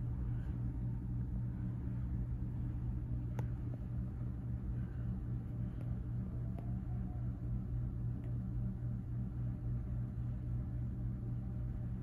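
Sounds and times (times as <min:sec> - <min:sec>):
ceiling fan motor hum: 0:00.0 - 0:12.0.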